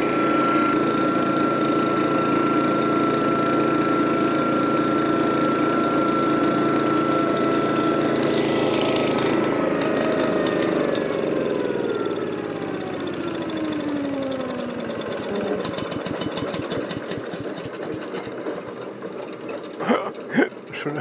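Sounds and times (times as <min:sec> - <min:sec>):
lawn machine motor running down: 0:00.0 - 0:21.0
fast clicking rattle: 0:15.2 - 0:20.7.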